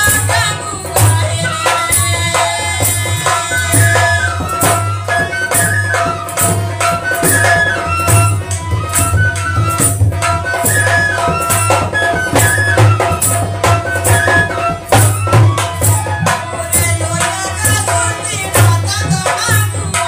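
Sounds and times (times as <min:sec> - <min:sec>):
hand drum beat: 0:00.0 - 0:20.0
harmonium melody: 0:00.0 - 0:20.0
sharp percussion strikes: 0:00.0 - 0:20.0.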